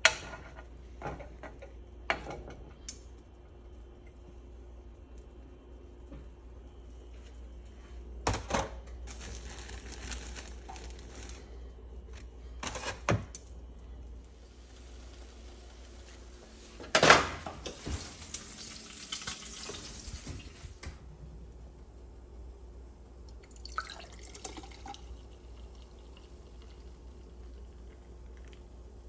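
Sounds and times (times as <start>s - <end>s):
food sizzling in a pan: 9.1s - 11.5s, 14.3s - 20.8s.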